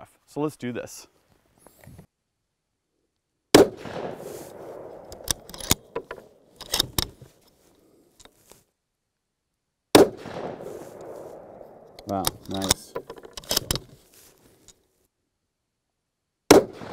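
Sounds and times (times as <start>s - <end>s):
rifle shot with rolling echo: 3.5s - 7.1s, 9.9s - 13.0s, 16.5s - 16.9s
rifle bolt metallic clicks: 3.8s - 7.3s, 10.4s - 14.0s.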